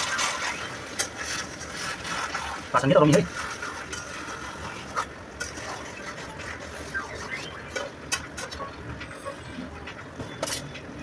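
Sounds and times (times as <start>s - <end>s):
metal spatula scraping a pan: 0.0s - 6.7s.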